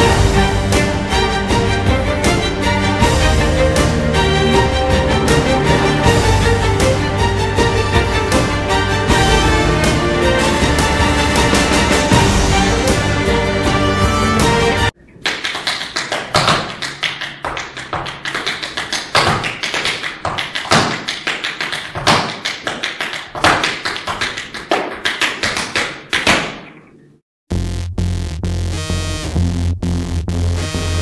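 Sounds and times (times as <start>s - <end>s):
music: 0.0s - 15.0s, 27.5s - 31.0s.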